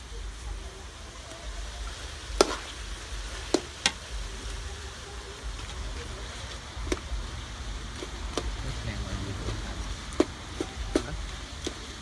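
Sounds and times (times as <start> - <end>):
faint sizzle: 0.0 - 12.0.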